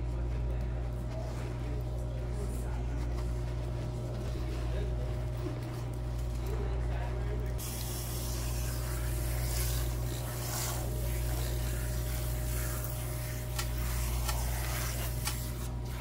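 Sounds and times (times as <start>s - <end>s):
steady low hum: 0.0s - 16.0s
hand sprayer spraying water: 7.6s - 16.0s.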